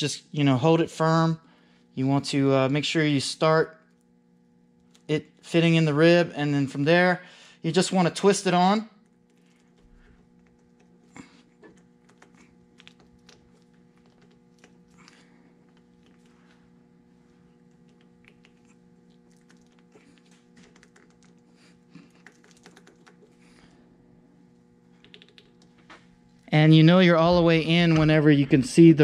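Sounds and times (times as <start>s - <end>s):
low hum: 8.5s - 29.0s.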